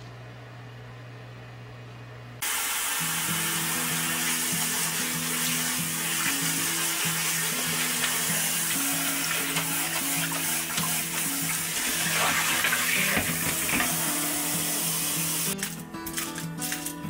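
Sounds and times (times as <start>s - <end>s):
tap water running: 2.4s - 16.8s
soft background music: 3.1s - 17.0s.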